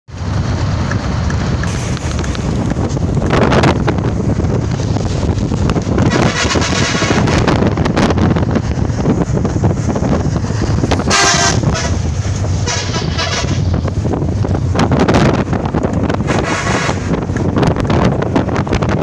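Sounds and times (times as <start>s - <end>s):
wind and road noise: 0.1s - 19.0s
vehicle horn honking: 6.0s - 7.3s, 11.1s - 12.0s, 12.6s - 13.6s.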